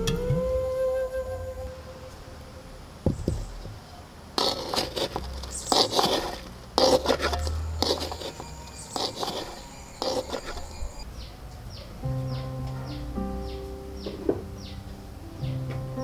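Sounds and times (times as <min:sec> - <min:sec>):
spoon scraping in metal pan: 0:04.4 - 0:11.0.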